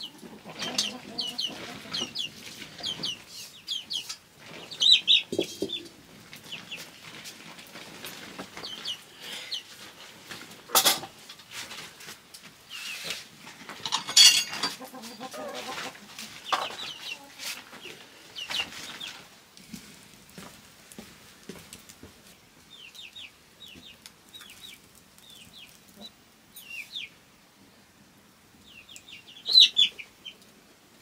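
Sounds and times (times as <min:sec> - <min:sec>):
chickens clucking: 0:00.0 - 0:11.9, 0:12.7 - 0:19.4, 0:22.7 - 0:27.2
sharp metal clanks: 0:13.9 - 0:14.7.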